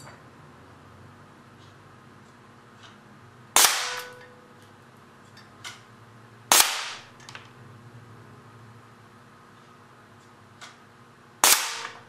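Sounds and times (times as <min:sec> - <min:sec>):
air cannon shots: 0:03.6 - 0:04.1, 0:06.5 - 0:07.1, 0:11.4 - 0:12.0
brief metallic ring: 0:03.9 - 0:04.5.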